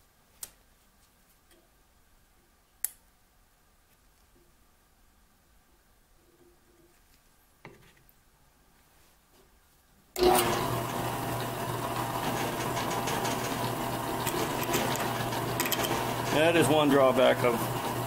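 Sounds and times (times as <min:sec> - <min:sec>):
drill press motor whirring: 0:10.2 - 0:18.0.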